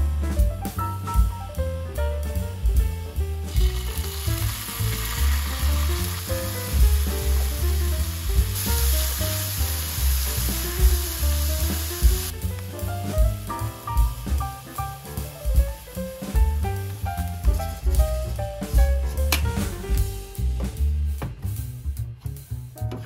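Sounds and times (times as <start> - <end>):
jazz background music: 0.0 - 23.0
food sizzling in a frying pan: 3.5 - 18.4.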